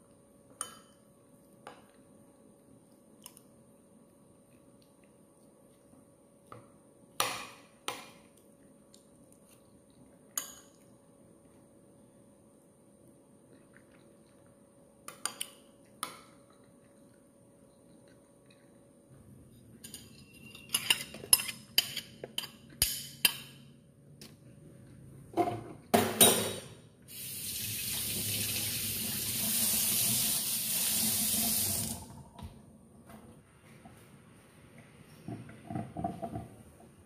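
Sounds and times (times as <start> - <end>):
dishes clattering: 25.4 - 26.8.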